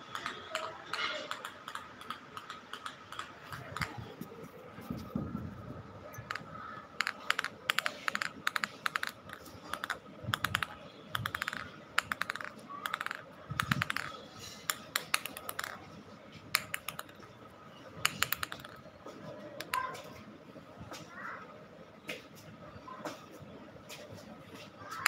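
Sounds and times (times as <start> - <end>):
rapid sharp clicking and tapping: 0.0 - 4.5, 6.2 - 15.9, 16.5 - 17.3, 18.0 - 19.0.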